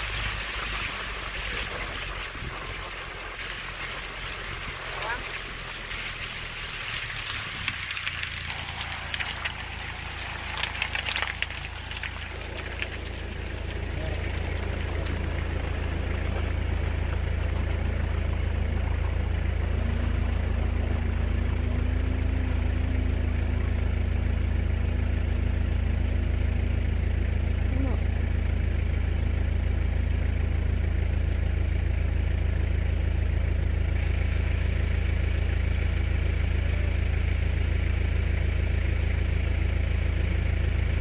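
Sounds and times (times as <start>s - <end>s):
vehicle engine drone: 0.0s - 41.0s.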